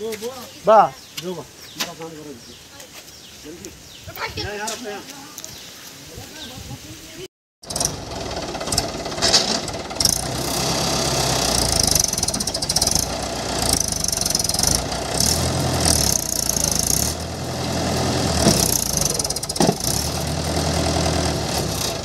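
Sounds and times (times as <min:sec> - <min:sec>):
tractor diesel engine labouring: 0:07.6 - 0:22.0.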